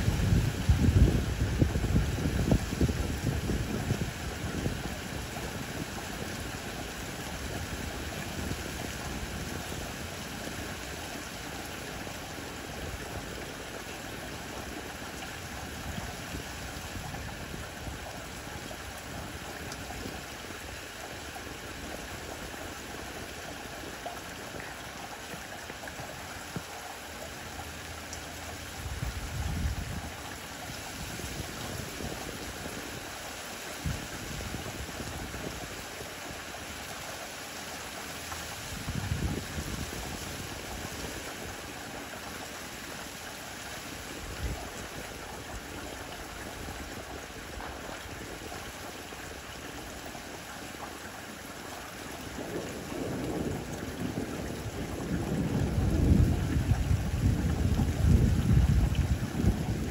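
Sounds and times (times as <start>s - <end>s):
rain falling on leaves: 0.0s - 59.9s.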